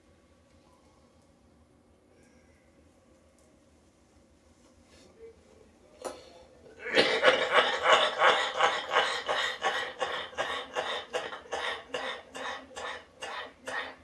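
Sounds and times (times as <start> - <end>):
man coughing: 6.8 - 14.0.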